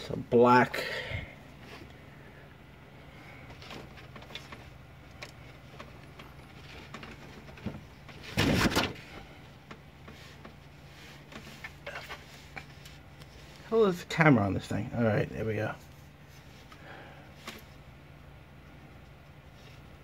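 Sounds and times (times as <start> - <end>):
low steady hum: 0.0 - 20.0
light clicks and rustles: 3.3 - 13.7.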